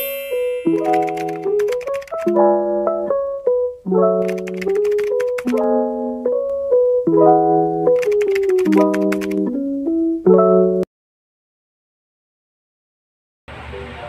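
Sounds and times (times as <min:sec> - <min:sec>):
piano playing repeating phrases: 0:00.0 - 0:10.9.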